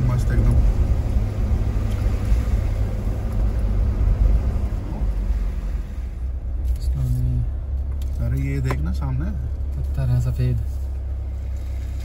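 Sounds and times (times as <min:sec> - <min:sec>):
road noise: 0:00.0 - 0:12.0
vehicle engine rumble: 0:00.0 - 0:12.0.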